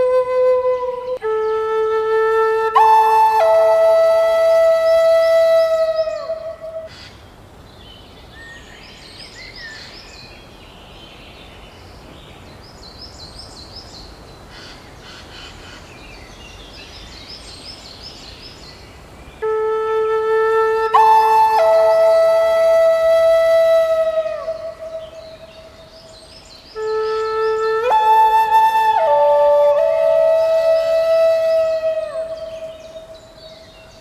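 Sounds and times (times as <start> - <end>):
flute music: 0.0 - 6.9, 19.4 - 25.8, 26.8 - 34.0
steady outdoor hiss: 0.0 - 34.0
birds chirping: 23.2 - 34.0.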